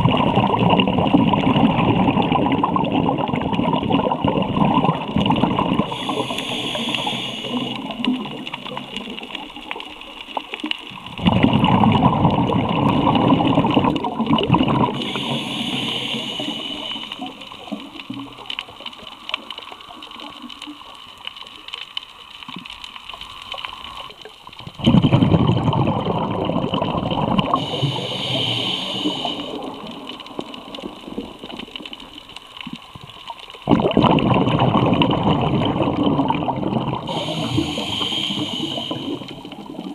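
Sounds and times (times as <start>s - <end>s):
gurgling exhaled bubbles: 0.0s - 21.7s, 22.6s - 39.9s
regulator hissing inhale: 5.8s - 9.0s, 14.9s - 17.8s, 27.5s - 30.8s, 37.0s - 39.8s.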